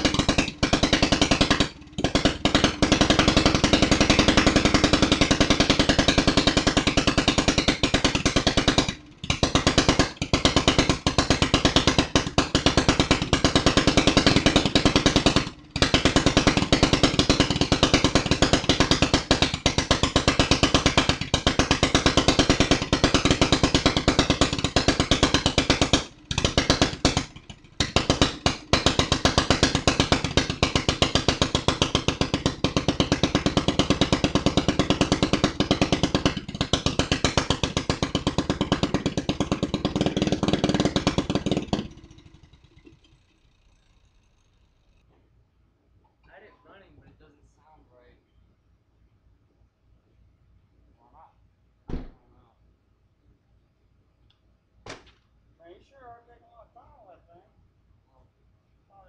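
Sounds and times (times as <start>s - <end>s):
go-kart engine running fast: 0.0s - 44.7s.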